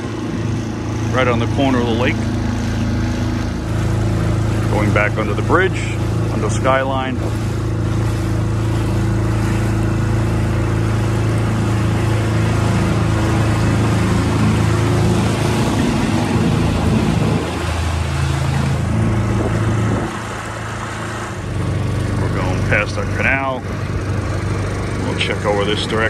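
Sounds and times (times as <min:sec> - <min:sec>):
outboard motor running: 0:00.0 - 0:26.0
water noise: 0:00.0 - 0:26.0
wind noise: 0:15.2 - 0:20.4.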